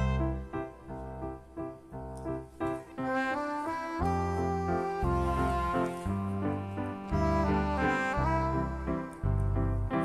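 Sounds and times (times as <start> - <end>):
low bass line: 0.0 - 1.3, 4.0 - 10.0
melody of held notes: 0.0 - 10.0.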